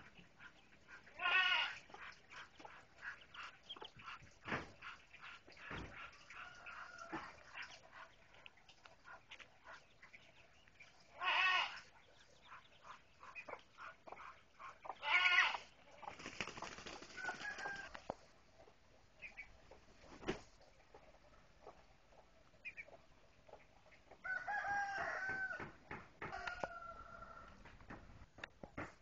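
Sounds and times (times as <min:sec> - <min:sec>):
ducklings peeping: 0:00.0 - 0:24.2
adult fowl squawking: 0:13.2 - 0:15.7
duck wings flapping: 0:16.1 - 0:18.1, 0:20.0 - 0:20.6.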